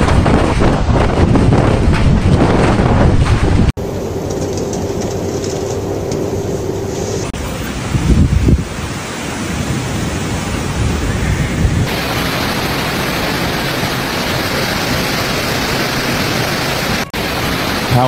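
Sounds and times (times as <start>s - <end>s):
wind buffeting microphone: 0.0s - 17.1s
strong wind: 0.0s - 18.0s
heavy rain: 6.6s - 18.0s.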